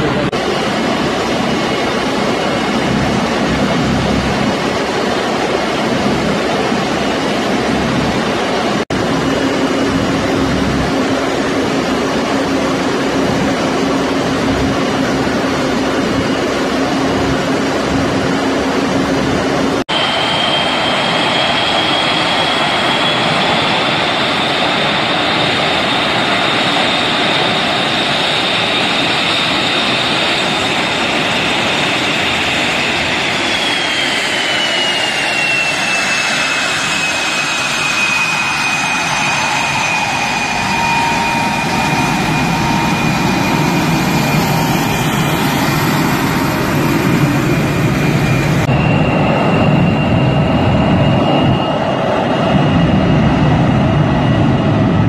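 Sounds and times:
jet engine high whine: 0.0s - 55.0s
jet engine running: 0.0s - 55.0s.

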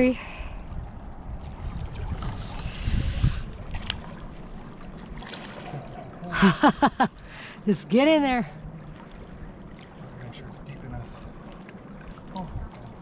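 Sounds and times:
wind on microphone: 0.0s - 7.2s
water splashing: 0.0s - 13.0s.

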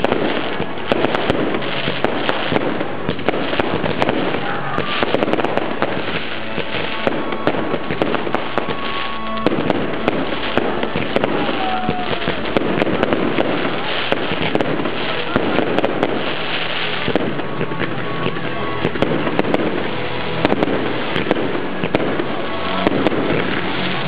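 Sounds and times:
firework whistles: 0.0s - 24.0s
fireworks bangs and crackling: 0.0s - 24.0s.

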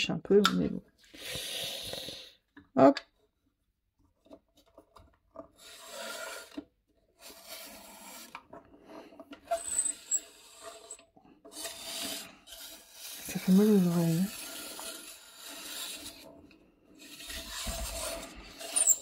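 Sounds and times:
blade scraping paper: 5.6s - 8.5s, 9.5s - 16.4s, 17.0s - 19.0s.

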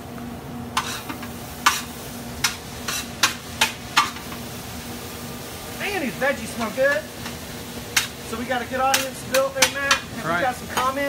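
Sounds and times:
frying sizzle: 0.0s - 11.0s
metal spatula scraping a pan: 0.8s - 4.2s.

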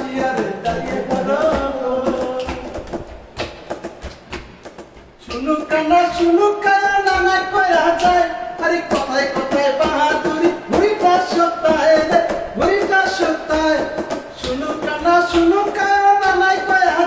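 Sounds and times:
man singing folk song: 0.0s - 2.9s, 5.2s - 17.0s
sharp percussive taps: 0.0s - 17.0s.

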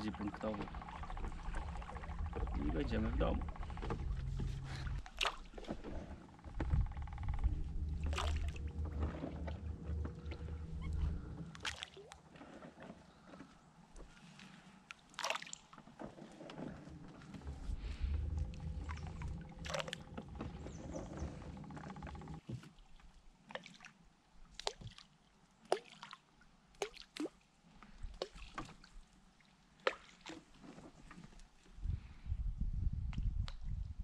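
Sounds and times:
low rumble: 0.0s - 5.1s, 5.8s - 11.7s, 16.9s - 22.4s
water sloshing and dripping: 0.0s - 31.7s
sharp plops and knocks: 0.6s - 9.6s.

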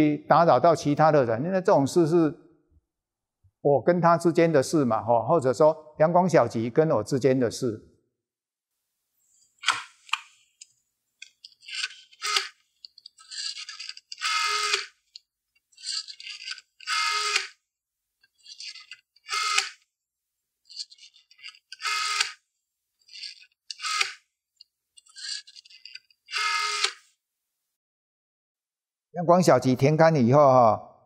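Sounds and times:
rotary telephone dial whirring: 11.2s - 17.6s, 18.3s - 19.8s, 20.7s - 22.4s, 23.0s - 24.3s, 25.0s - 27.1s.

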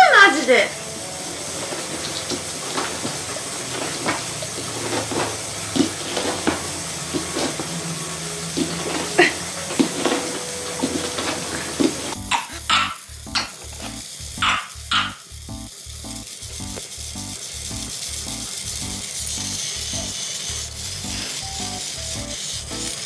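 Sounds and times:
steady hiss: 0.0s - 23.0s
clicks and rustles on hard floor: 2.8s - 7.7s
repeating electronic tune: 12.2s - 20.2s, 21.0s - 23.0s.

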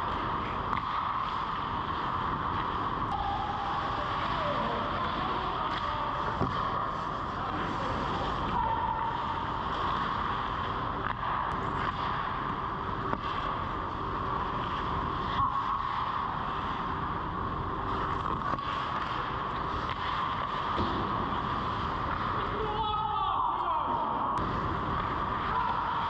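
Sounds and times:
skates scraping on ice: 0.0s - 22.7s
high hum: 0.0s - 23.2s.

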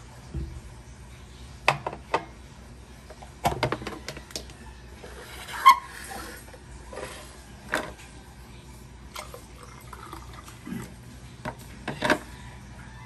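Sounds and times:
water pouring into a glass: 9.1s - 11.0s.

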